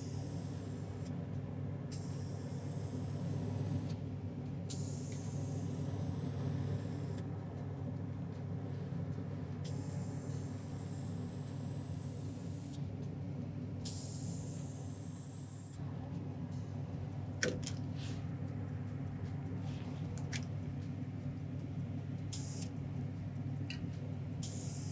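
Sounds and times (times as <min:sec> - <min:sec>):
steady low hum: 0:00.0 - 0:24.9
aerosol spray can hissing: 0:01.9 - 0:03.9, 0:04.7 - 0:06.3, 0:09.7 - 0:12.8, 0:13.9 - 0:15.8, 0:22.3 - 0:22.7, 0:24.4 - 0:24.9.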